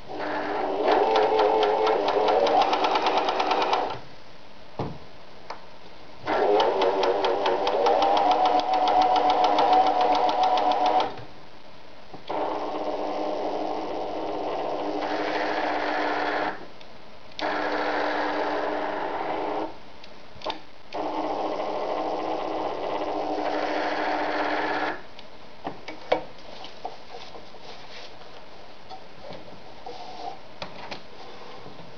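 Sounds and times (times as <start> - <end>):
sewing machine stitching: 0.1 - 4.0, 6.2 - 11.2, 12.3 - 16.6, 17.4 - 19.7, 21.0 - 25.0.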